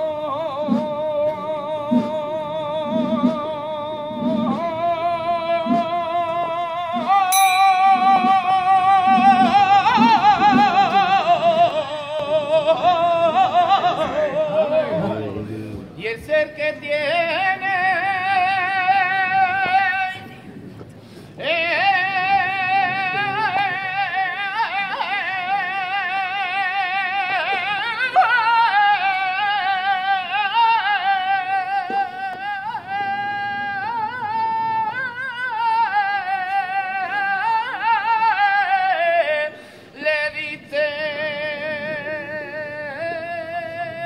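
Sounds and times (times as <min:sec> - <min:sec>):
man singing unaccompanied: 0:00.0 - 0:15.4, 0:16.0 - 0:20.4, 0:21.4 - 0:44.0.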